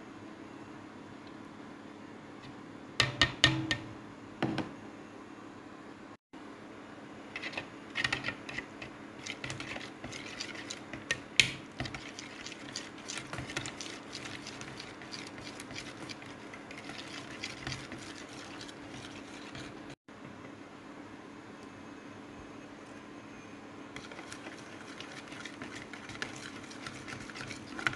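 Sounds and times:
whisk clicking against glass bowl: 9.2 - 19.8, 24.0 - 27.9.

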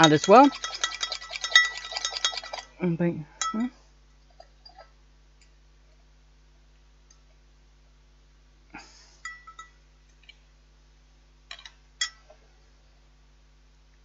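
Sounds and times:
utensil clinking against bowl: 0.0 - 2.7.

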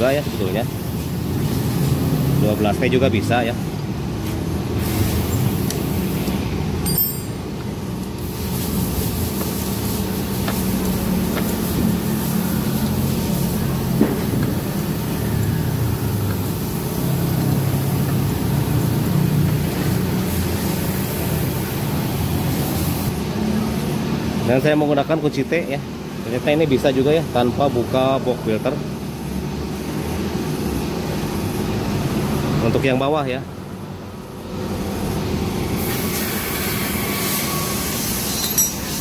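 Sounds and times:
low mechanical hum: 0.0 - 24.6.

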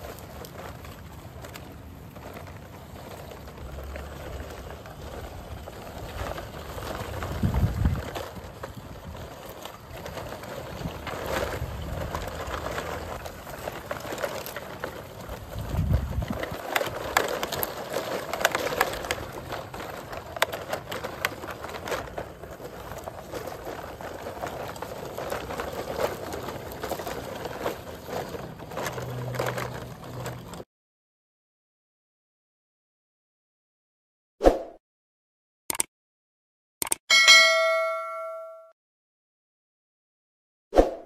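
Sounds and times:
plastic toys rattling: 0.0 - 30.6
toy truck wheels crunching soil: 0.0 - 30.7.

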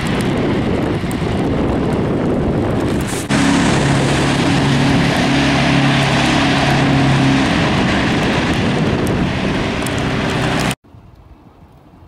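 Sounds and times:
truck engine droning: 2.8 - 10.8.

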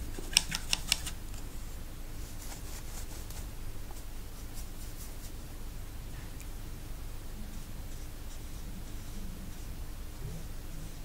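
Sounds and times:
paintbrush clicking against jar: 0.2 - 1.1
brush scratching in palette: 2.2 - 5.4.

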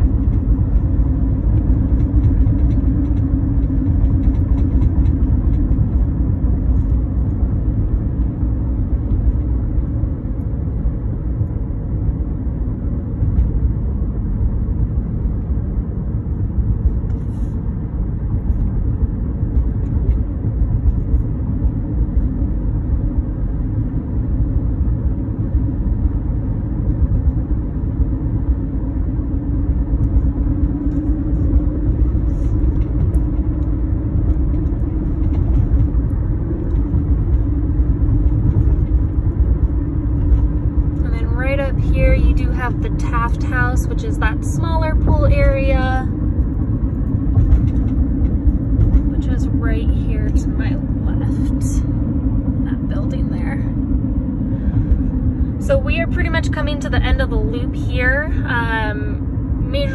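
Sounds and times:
car cabin road rumble: 0.0 - 59.9.

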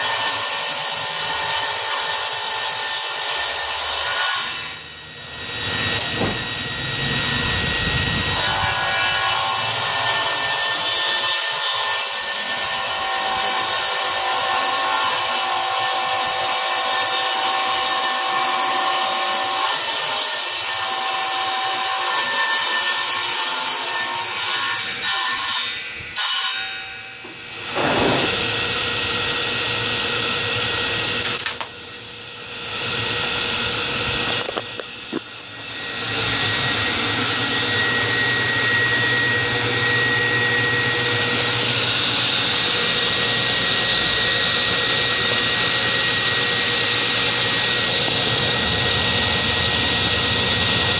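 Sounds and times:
table saw cutting wood: 0.0 - 50.9
machine drone with low hum: 4.8 - 8.5, 27.3 - 50.9
knocks: 6.0 - 6.5.

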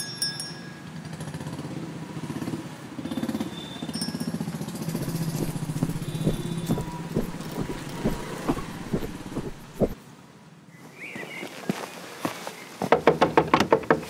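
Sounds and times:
vehicle engine running: 5.0 - 10.0.

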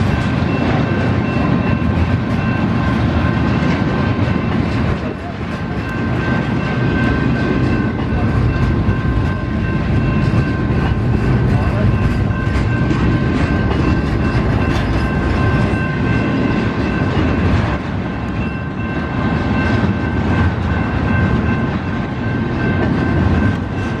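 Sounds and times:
steel train wheels rumbling on rail: 0.0 - 24.0
high ringing tone: 5.6 - 24.0.

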